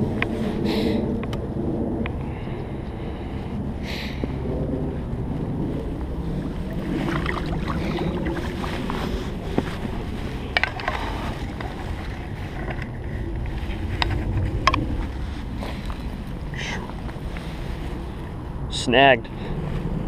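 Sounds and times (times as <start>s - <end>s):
wind rumbling on microphone: 0.0s - 20.0s
jacket fabric brushing: 6.2s - 16.2s.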